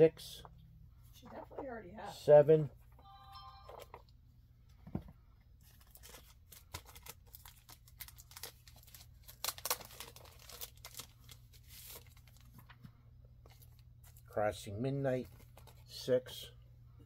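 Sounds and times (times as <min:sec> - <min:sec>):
paper rustling and crinkling: 0:05.6 - 0:14.3, 0:15.2 - 0:15.9.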